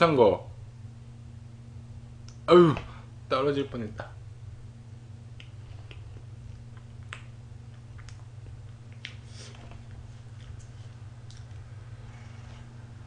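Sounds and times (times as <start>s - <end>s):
steady low hum: 0.0s - 13.0s
mouth smacks and fork clicks: 5.4s - 9.2s.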